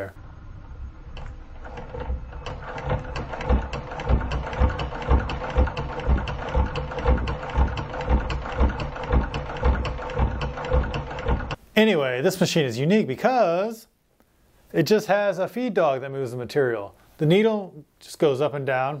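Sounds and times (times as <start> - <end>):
sewing machine motor hum: 0.6 - 11.6
sewing machine needle knocking: 1.2 - 11.6.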